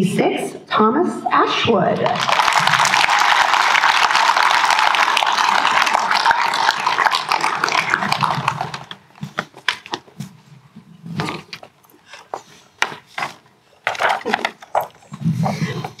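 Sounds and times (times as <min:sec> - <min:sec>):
scattered claps and knocks: 0:02.0 - 0:10.1
audience applauding: 0:02.2 - 0:09.0.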